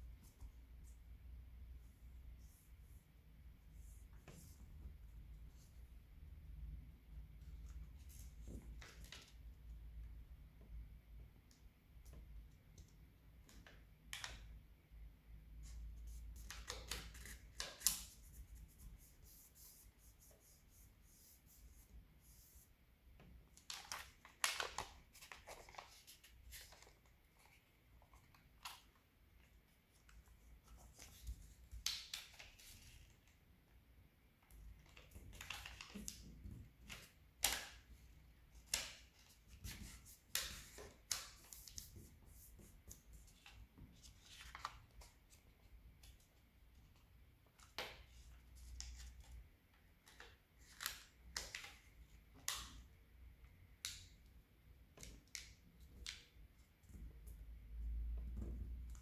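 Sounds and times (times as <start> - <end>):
paper crinkling and rustling: 23.5 - 29.0.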